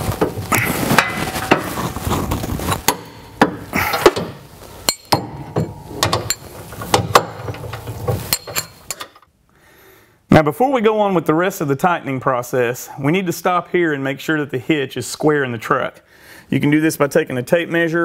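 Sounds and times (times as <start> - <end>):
metal tools clinking on steel: 4.8 - 9.2.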